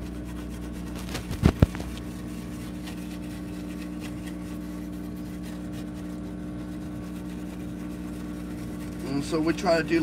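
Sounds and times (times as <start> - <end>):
steady motor hum: 0.0 - 10.0
microphone handling bumps: 1.0 - 2.0.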